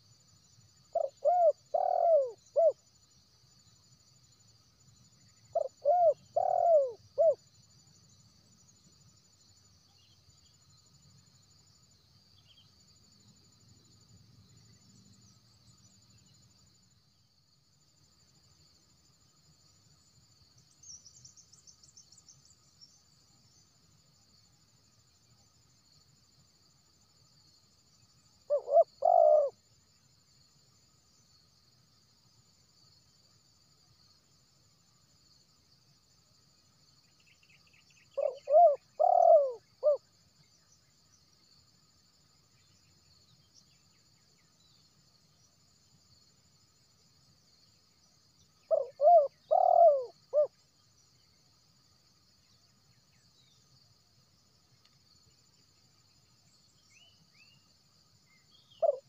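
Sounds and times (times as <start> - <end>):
high insect trill: 0.0 - 59.0
dove cooing: 0.9 - 2.8, 5.5 - 7.4, 28.5 - 29.6, 38.2 - 40.0, 48.7 - 50.5, 58.8 - 59.0.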